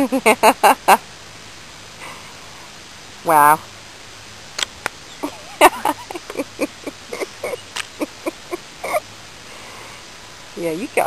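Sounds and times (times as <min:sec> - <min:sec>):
squeaky giggling: 0:05.2 - 0:09.0.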